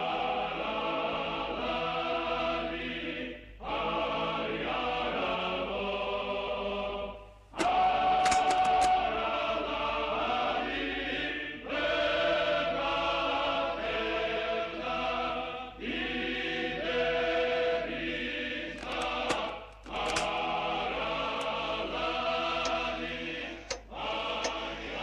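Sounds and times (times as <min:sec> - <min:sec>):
choir singing sustained chords: 0:00.0 - 0:25.0.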